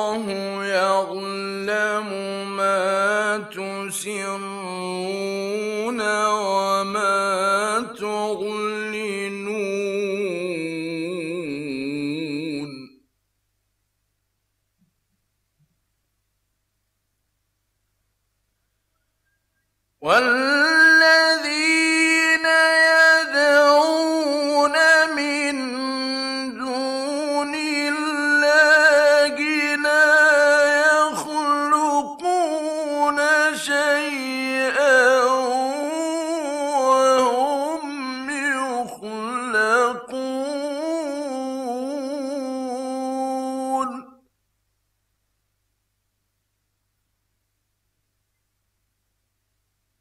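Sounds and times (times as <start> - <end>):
man chanting recitation: 0.0 - 13.0, 20.0 - 44.2
faint steady high tone: 18.6 - 19.8.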